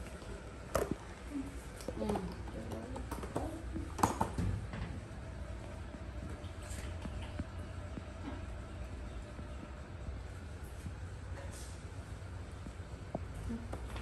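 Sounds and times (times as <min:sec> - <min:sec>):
football rolling on tiled floor: 0:01.9 - 0:05.0.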